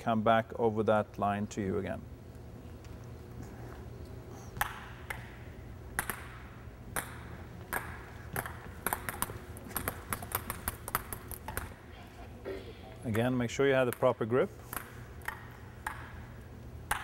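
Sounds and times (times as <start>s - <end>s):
table tennis balls ticking: 4.6s - 11.8s, 13.1s - 17.0s.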